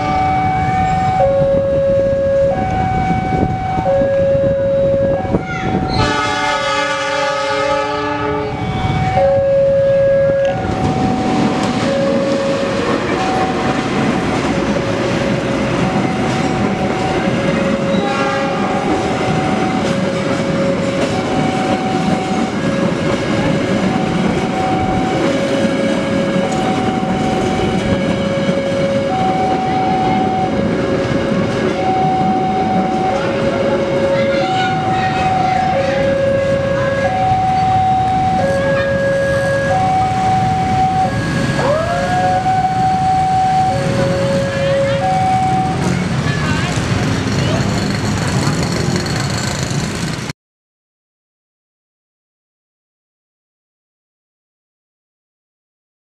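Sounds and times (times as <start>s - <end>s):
level crossing warning signal: 0.0s - 46.7s
locomotive horn chord: 5.9s - 13.7s, 17.8s - 19.7s
train wheels on rails: 10.4s - 50.3s.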